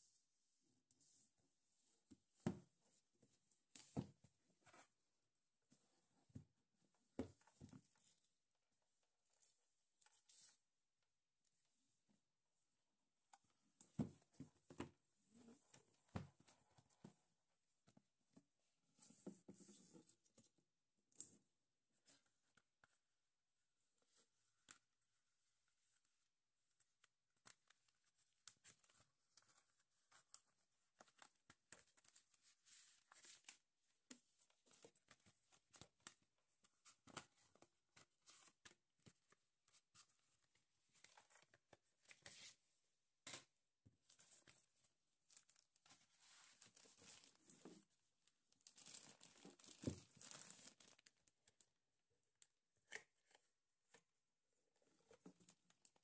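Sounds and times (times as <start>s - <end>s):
paper and plastic crinkling: 48.6s - 51.1s.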